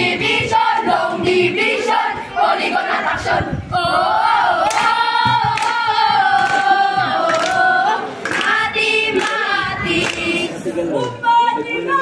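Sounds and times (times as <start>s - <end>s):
young voices singing in unison: 0.0s - 12.0s
hand claps: 4.6s - 9.4s, 10.0s - 10.3s.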